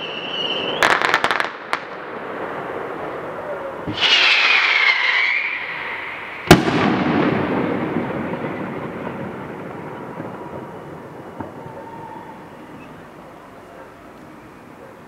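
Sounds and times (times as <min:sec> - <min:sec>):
firework whistle hissing: 0:00.0 - 0:01.4, 0:03.8 - 0:07.2, 0:11.6 - 0:13.1
loud firework bang echoing: 0:03.8 - 0:13.0.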